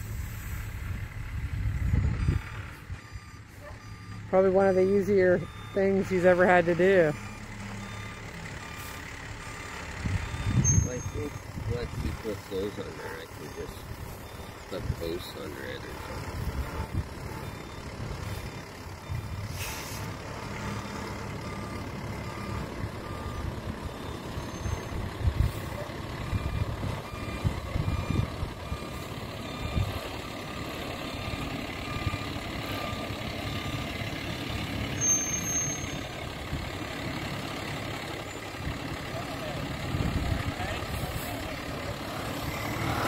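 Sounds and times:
diesel truck engine running: 0:00.0 - 0:43.0
backup alarm beeping: 0:01.8 - 0:19.4, 0:20.1 - 0:36.1.

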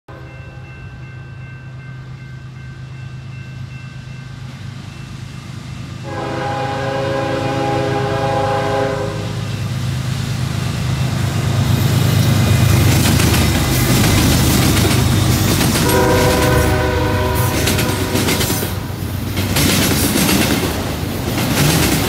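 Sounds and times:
diesel locomotive engine rumble: 0:00.1 - 0:22.0
train air horn blasts: 0:06.0 - 0:09.5, 0:15.7 - 0:18.9.

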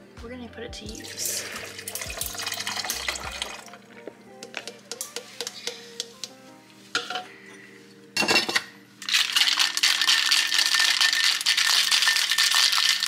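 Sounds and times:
ice rattling in cocktail shaker: 0:01.0 - 0:03.8, 0:09.0 - 0:13.0.

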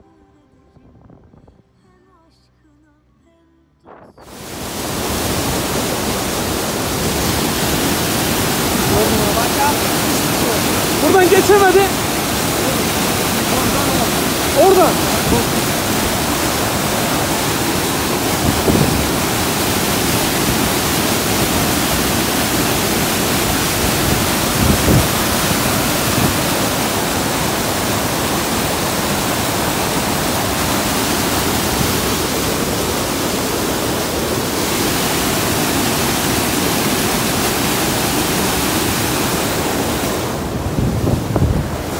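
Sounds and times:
stream rushing over boulders: 0:04.2 - 0:41.9.

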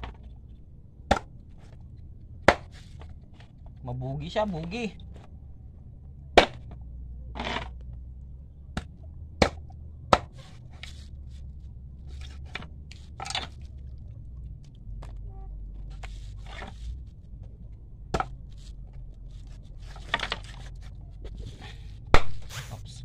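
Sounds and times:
knife chopping onto wooden board: 0:08.8 - 0:10.4.

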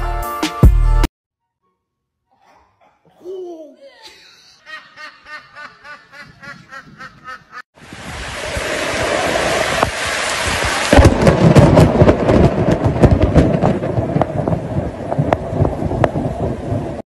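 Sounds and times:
heavy rain hissing: 0:07.8 - 0:11.7.

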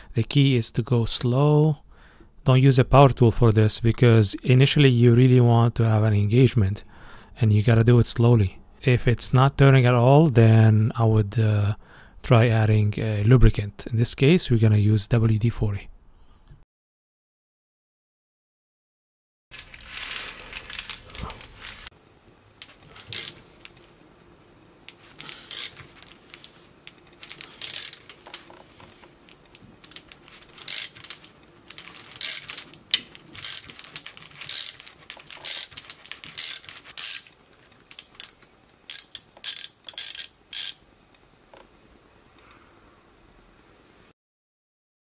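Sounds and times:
ratchet clicking: 0:23.0 - 0:23.4, 0:25.2 - 0:26.5, 0:27.2 - 0:28.5, 0:29.8 - 0:37.3, 0:37.9 - 0:40.8.

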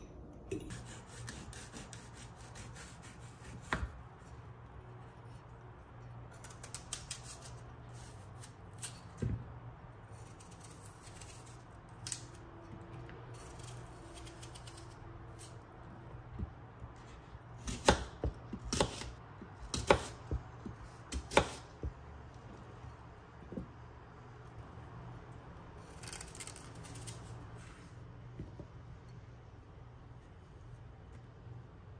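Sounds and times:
low steady hum: 0:00.0 - 0:31.9
knife cutting an apple: 0:00.7 - 0:04.4, 0:10.1 - 0:12.4, 0:17.0 - 0:21.9, 0:25.8 - 0:27.8.

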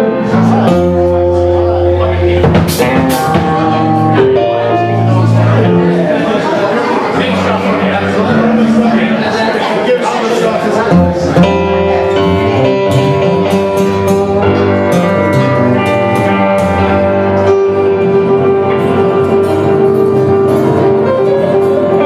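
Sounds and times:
drums: 0:00.0 - 0:06.1, 0:10.9 - 0:22.0
bass: 0:00.0 - 0:09.6, 0:10.7 - 0:22.0
electric guitar: 0:00.0 - 0:09.7, 0:10.8 - 0:22.0.

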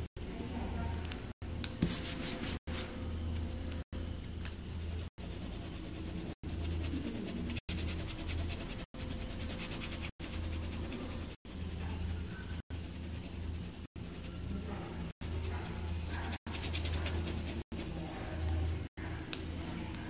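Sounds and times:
steady low hum: 0:00.0 - 0:20.0
pencil scratching on paper: 0:04.4 - 0:19.5.

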